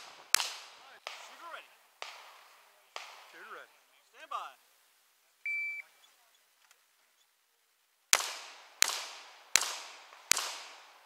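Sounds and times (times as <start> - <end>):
handgun shots with ringing echo: 2.0 - 3.3, 8.1 - 11.0.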